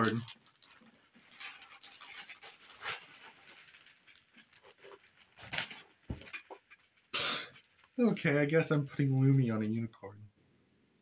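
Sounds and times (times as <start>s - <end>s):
plastic packaging rustling: 0.0s - 9.7s.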